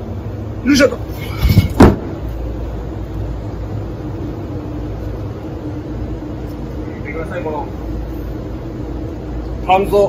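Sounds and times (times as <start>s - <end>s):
low background hum: 0.0s - 10.0s
handling noise of lifting wheel: 1.2s - 2.4s.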